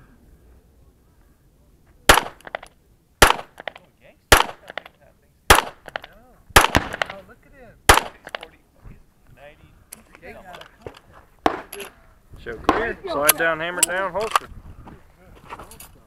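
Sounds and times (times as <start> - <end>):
gunshot echoes: 2.1 - 2.6, 3.2 - 4.9, 5.5 - 7.2, 7.9 - 8.4
pistol shots: 2.1 - 4.9, 5.5 - 7.2, 7.9 - 8.5.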